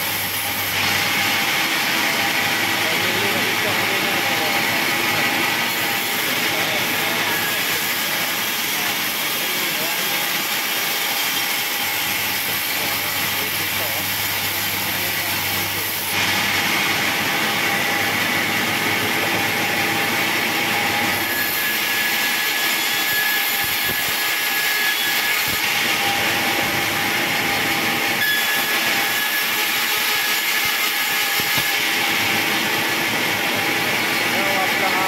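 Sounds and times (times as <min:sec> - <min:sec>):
band saw cutting log: 0:00.0 - 0:35.0
thin high whistle: 0:28.2 - 0:28.7.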